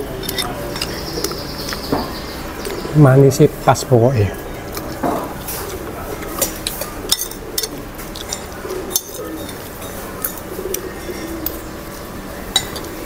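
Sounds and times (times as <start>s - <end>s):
cutlery clinking on ceramic plate: 6.2s - 11.6s, 12.5s - 13.0s.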